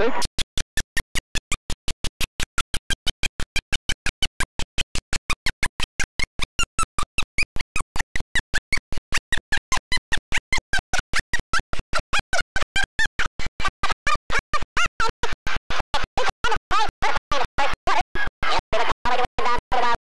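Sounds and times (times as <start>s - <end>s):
commentator talking: 0.0s - 0.2s
crowd noise: 0.0s - 0.2s.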